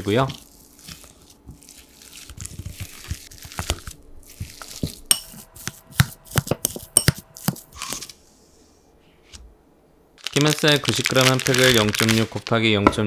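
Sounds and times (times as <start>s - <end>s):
potatoes being mashed: 0.0s - 7.8s.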